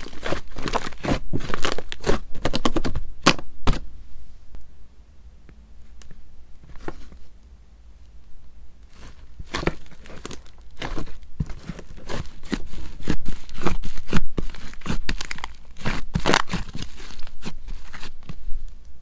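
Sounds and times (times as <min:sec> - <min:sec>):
slime crackling and popping: 0:08.9 - 0:18.1.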